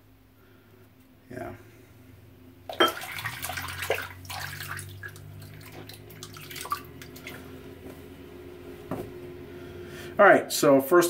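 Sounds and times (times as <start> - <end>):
water splashing in sink: 2.7 - 7.6.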